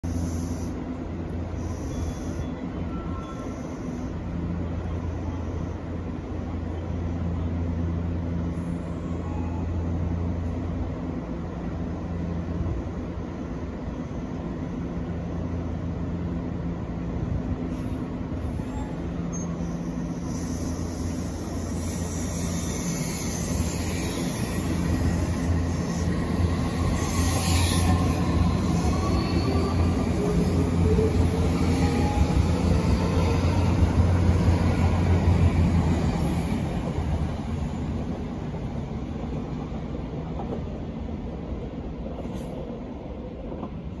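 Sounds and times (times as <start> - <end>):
train wheel noise: 15.0 - 44.0.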